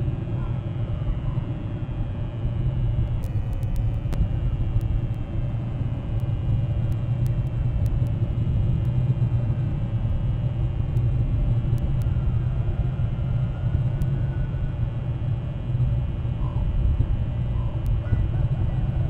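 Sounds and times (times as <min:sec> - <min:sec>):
low outdoor rumble: 0:00.0 - 0:19.0
faint clicks: 0:03.2 - 0:05.3, 0:06.1 - 0:08.2.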